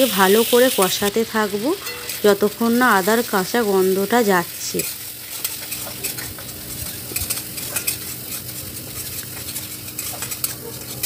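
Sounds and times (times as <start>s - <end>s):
spice paste sizzling in oil: 0.0s - 11.0s
spatula scraping metal pan: 4.9s - 11.0s.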